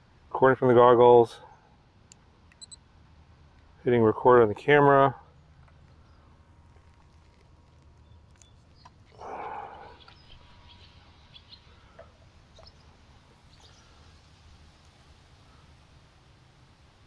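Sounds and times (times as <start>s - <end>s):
steady low hum: 0.0s - 17.0s
birds chirping: 7.9s - 15.8s.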